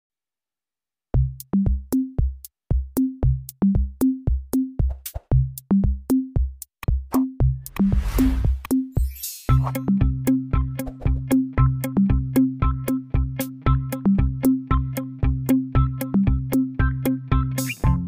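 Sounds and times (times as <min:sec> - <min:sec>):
upbeat children's music: 0:01.2 - 0:18.0.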